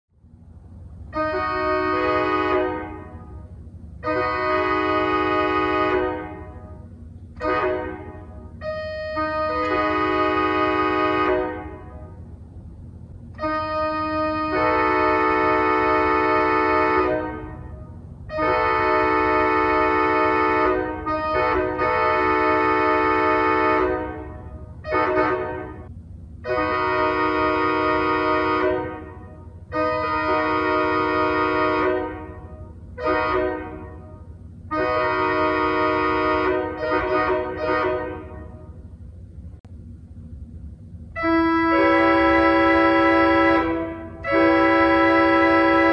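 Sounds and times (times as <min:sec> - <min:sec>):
pipe organ chords: 0:01.1 - 0:12.3.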